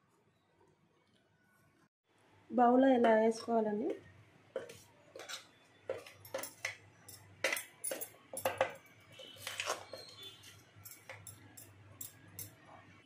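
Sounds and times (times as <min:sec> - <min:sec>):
metal spoon scraping steel jar: 0:04.6 - 0:12.6.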